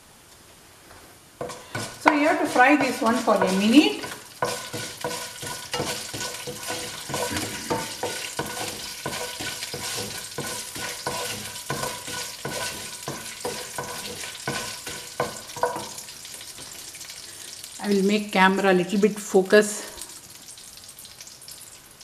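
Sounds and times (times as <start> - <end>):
seeds sizzling in oil: 0.9 - 22.0
spatula scraping a pan: 1.4 - 16.7.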